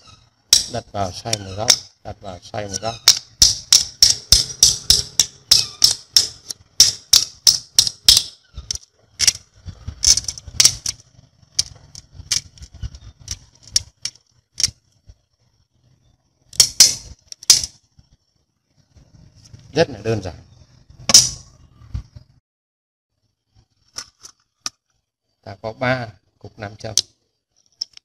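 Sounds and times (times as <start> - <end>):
screws clicking on metal: 2.8 - 9.4.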